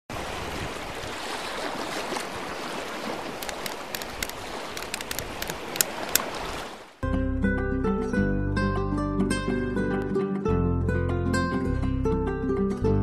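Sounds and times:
rushing water: 0.1 - 7.0
sharp high clicks: 3.4 - 6.3.

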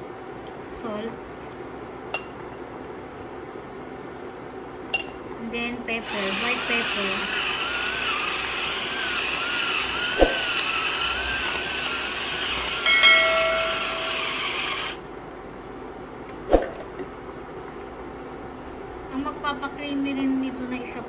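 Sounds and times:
small motor whirring hum: 6.0 - 15.0
sharp clicks: 11.4 - 11.7, 12.5 - 12.8
short bell-like chime: 12.8 - 14.4.

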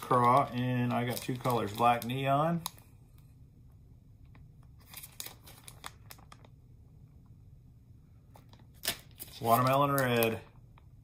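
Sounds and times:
plastic bag crinkling: 0.0 - 2.9, 4.3 - 6.6, 8.3 - 10.5.

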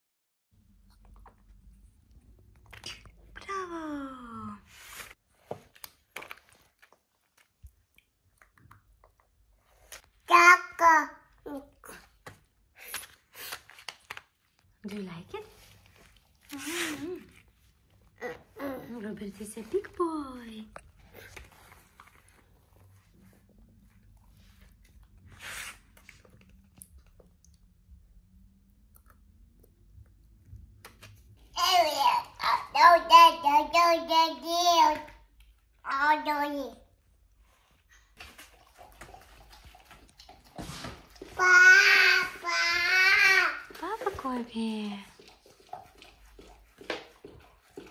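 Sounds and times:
mouth noises of eating: 0.7 - 3.6
baby chewing: 5.8 - 10.1.

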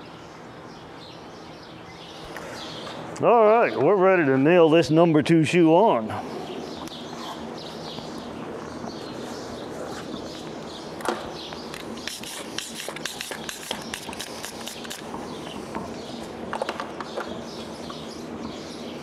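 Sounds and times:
faint bird chirping: 6.0 - 19.0.

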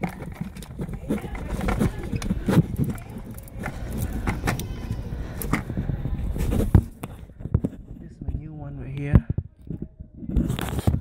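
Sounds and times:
low rumble: 1.4 - 9.0.

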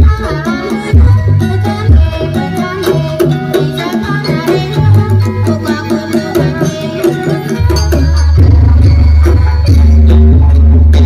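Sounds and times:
hand-drum beats: 0.0 - 11.0.

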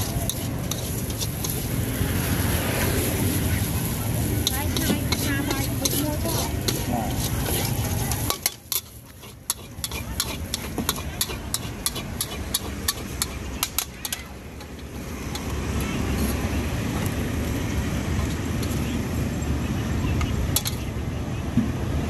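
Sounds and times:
street traffic rumble: 0.0 - 22.0
metal spatula clinking on wok: 4.4 - 14.2.

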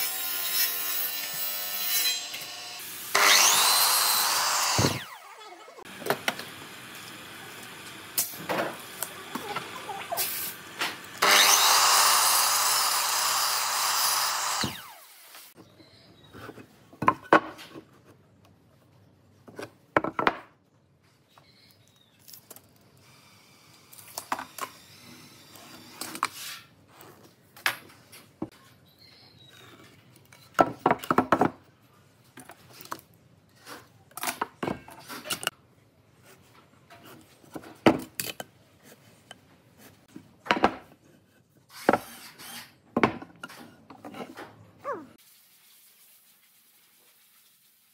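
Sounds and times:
tools knocking and scraping on wood: 16.3 - 18.2, 19.4 - 20.5, 29.5 - 31.7, 42.9 - 44.6.

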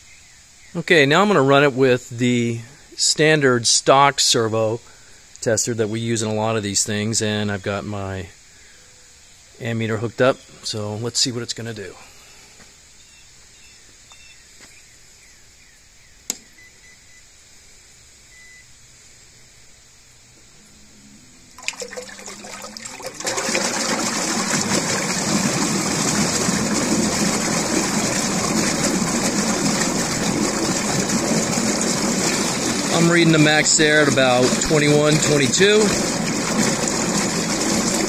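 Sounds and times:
faint hum: 0.0 - 38.0
propeller churning water: 21.4 - 38.0.

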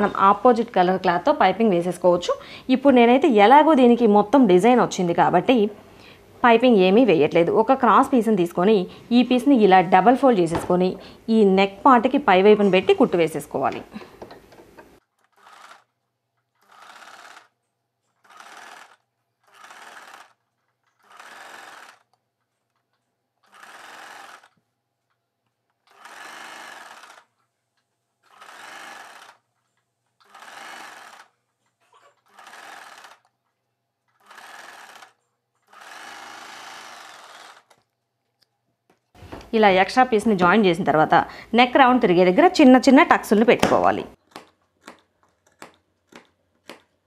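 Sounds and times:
sewing machine stitching: 14.7 - 22.2, 23.4 - 24.6, 25.8 - 27.4, 28.2 - 29.6, 30.2 - 33.3, 34.1 - 37.8.

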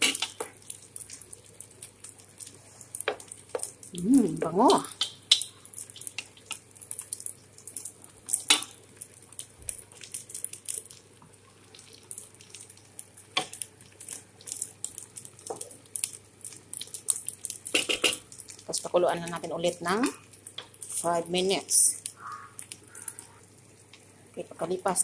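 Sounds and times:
curry bubbling in a pot: 0.0 - 25.0.

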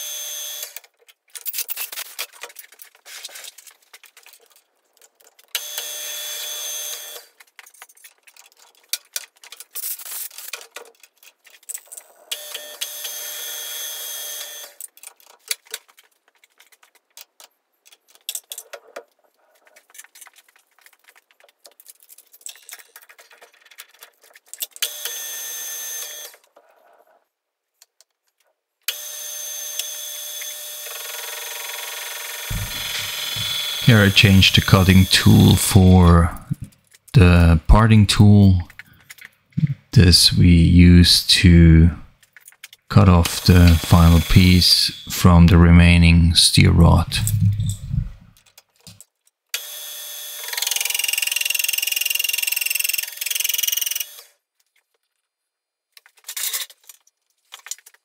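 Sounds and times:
lathe whining: 32.5 - 34.8.

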